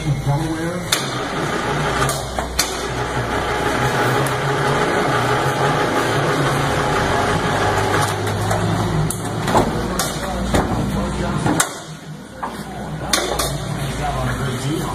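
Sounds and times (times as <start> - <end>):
machine running with low hum: 0.0 - 9.8.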